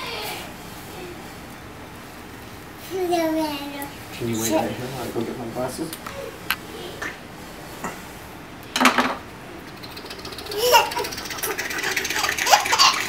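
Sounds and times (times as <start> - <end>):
toddler giggling: 10.3 - 13.0.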